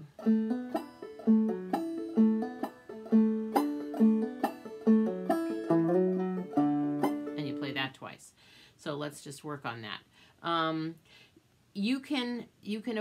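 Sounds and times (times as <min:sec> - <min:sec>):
banjo plucked clawhammer style: 0:00.0 - 0:07.9.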